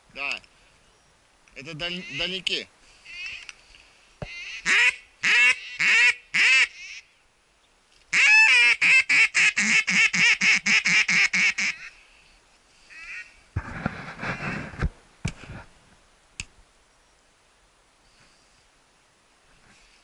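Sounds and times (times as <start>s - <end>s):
duck call quacks: 1.9s - 2.4s, 4.3s - 7.0s, 8.1s - 12.0s, 12.9s - 13.4s.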